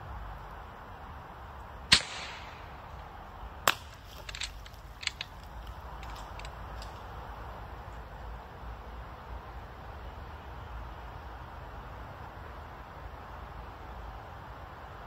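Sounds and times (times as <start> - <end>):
air rifle cracks: 1.9 - 3.0, 3.6 - 6.9.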